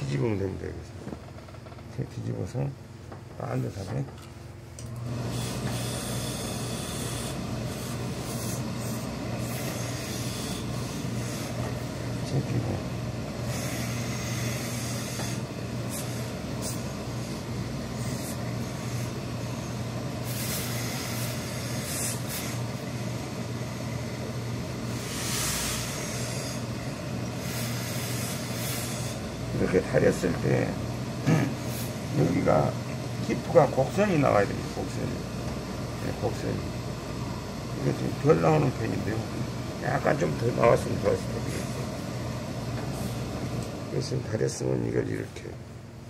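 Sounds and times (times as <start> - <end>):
steam iron machine hum: 4.8 - 45.2
hissing steam: 20.2 - 22.6, 27.4 - 29.2.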